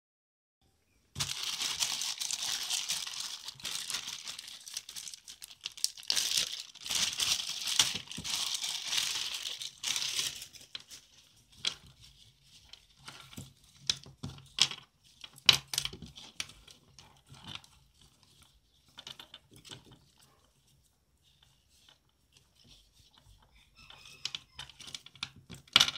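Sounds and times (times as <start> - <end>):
plastic bag crinkling: 1.2 - 11.3.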